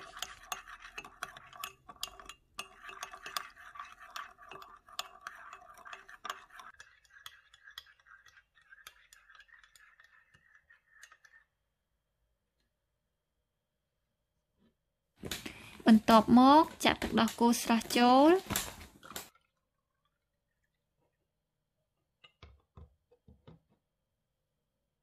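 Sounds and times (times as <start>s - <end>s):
teaspoon stirring in ceramic cup: 0.0s - 11.8s.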